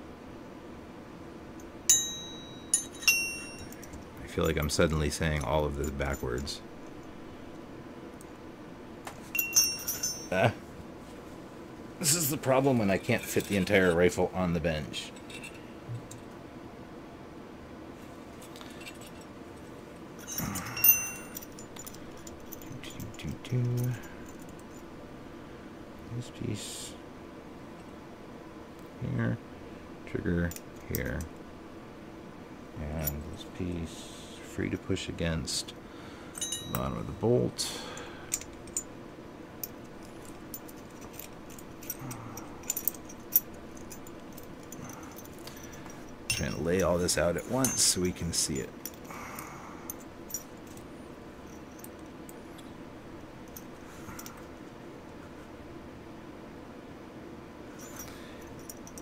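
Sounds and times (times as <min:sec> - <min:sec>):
metal parts clinking: 0:01.6 - 0:07.2, 0:09.1 - 0:10.6, 0:12.0 - 0:14.2, 0:15.0 - 0:16.3, 0:18.4 - 0:19.3, 0:20.2 - 0:24.9, 0:36.3 - 0:38.9, 0:39.6 - 0:52.8, 0:53.4 - 0:54.5, 0:57.8 - 0:59.0.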